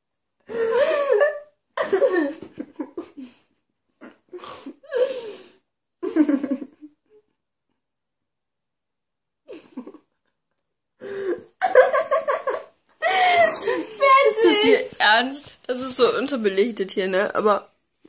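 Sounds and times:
woman laughing: 11.6s - 15.0s.

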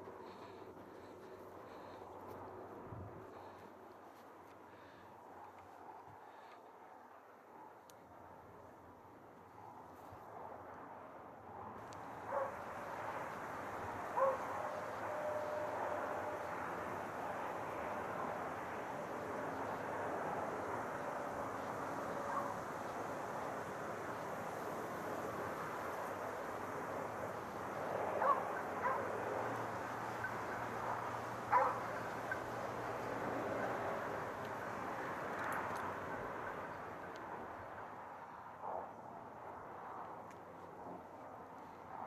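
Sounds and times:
steady rushing hiss: 11.8s - 38.6s
dog barking: 12.3s - 12.6s, 14.1s - 15.7s, 22.2s - 22.6s, 28.2s - 29.1s, 31.5s - 32.4s.

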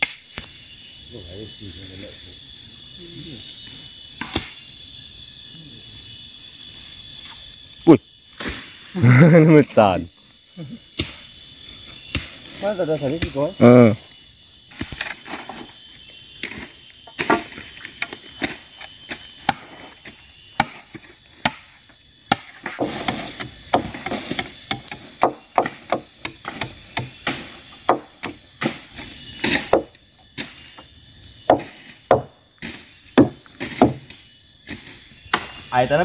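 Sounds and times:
forest insects droning: 0.0s - 36.0s
blade chopping wood and brush: 4.2s - 4.6s, 11.0s - 11.3s, 12.1s - 13.5s, 14.7s - 15.7s, 16.4s - 30.6s, 31.4s - 35.6s.

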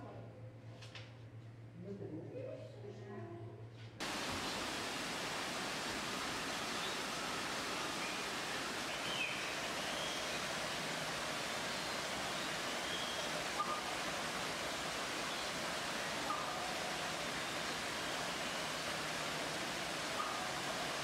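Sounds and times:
waterfall pouring over rocks: 4.0s - 21.0s
faint high chirps: 11.7s - 13.8s.

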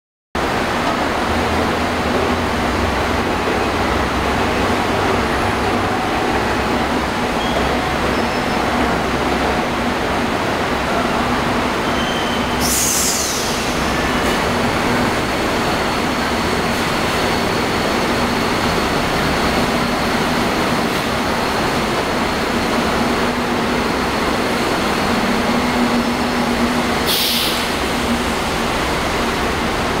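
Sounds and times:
monorail train running rumble: 0.4s - 30.0s
short high hisses: 12.6s - 13.8s, 27.0s - 27.8s.

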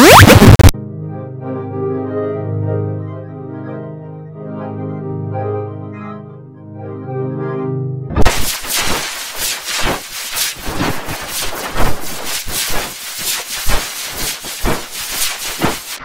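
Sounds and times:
distorted bit-crushed digital noise: 0.0s - 0.7s, 8.2s - 16.0s.

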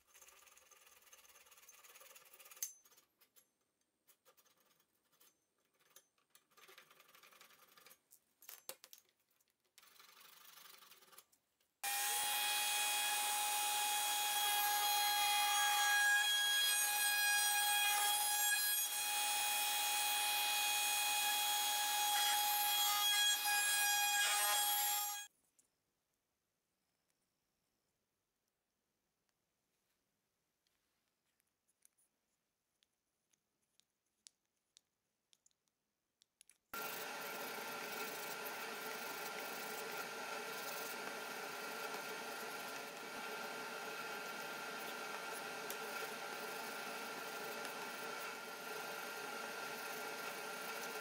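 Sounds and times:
router cutting wood: 11.8s - 25.3s, 36.8s - 51.0s
hand tool scraping wood: 36.8s - 48.4s.

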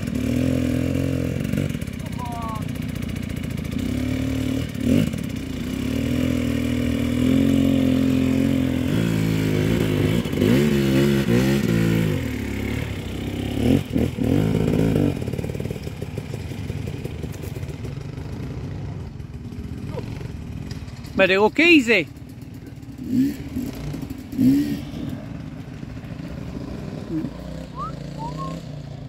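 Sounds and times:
dirt bike engine revving: 0.0s - 29.0s.

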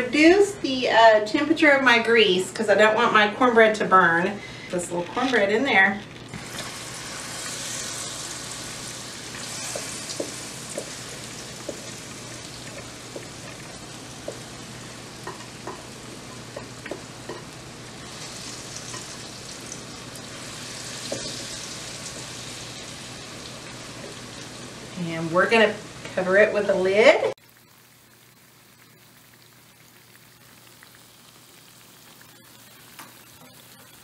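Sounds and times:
batter sizzling in hot oil: 4.0s - 34.0s.

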